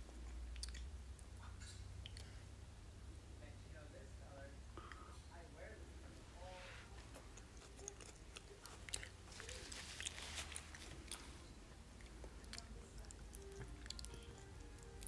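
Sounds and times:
child chewing bread: 0:00.0 - 0:02.7, 0:06.8 - 0:15.0.

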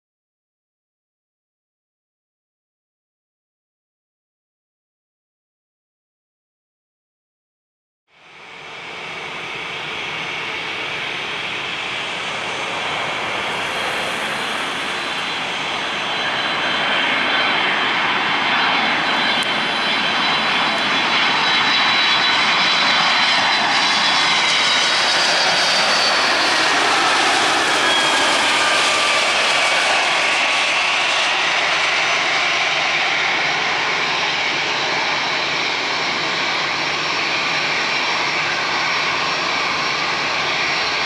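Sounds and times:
jet engines roaring and whining: 0:08.2 - 0:41.0.

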